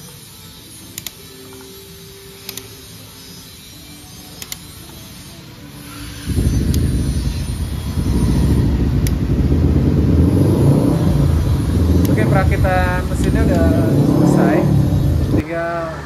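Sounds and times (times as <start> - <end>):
vehicle engine rumbling: 6.0 - 15.9.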